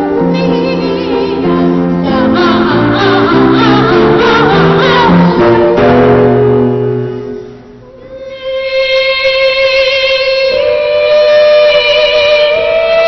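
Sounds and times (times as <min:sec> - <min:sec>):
children's choir singing: 0:00.0 - 0:06.3
instrumental accompaniment: 0:00.0 - 0:09.7.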